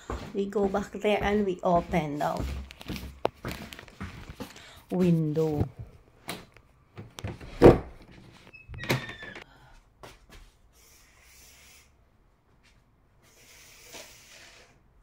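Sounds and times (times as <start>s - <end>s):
door squeak: 8.5s - 9.4s.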